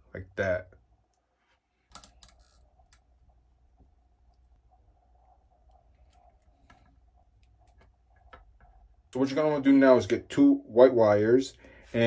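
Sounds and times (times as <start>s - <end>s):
faint steady hum: 0.0s - 12.0s
faint clicks and taps of wiring parts: 5.7s - 8.9s.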